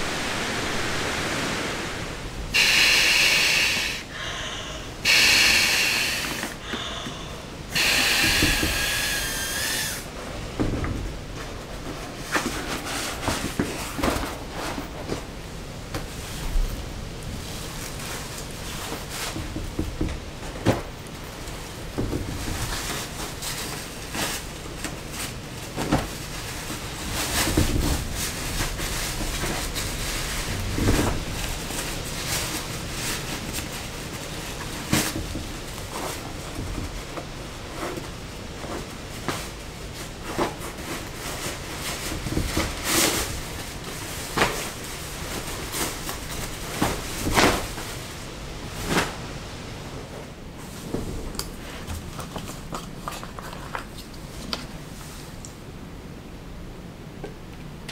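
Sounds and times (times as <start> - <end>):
steady background hiss: 0.0 - 57.9
stuff sacks and clothing rustling: 11.1 - 19.6, 20.4 - 55.4.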